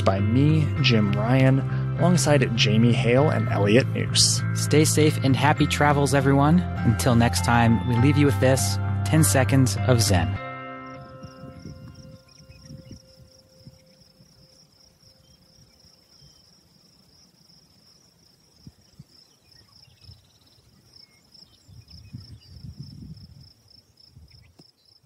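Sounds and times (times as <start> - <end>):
insect trilling: 10.9 - 25.0.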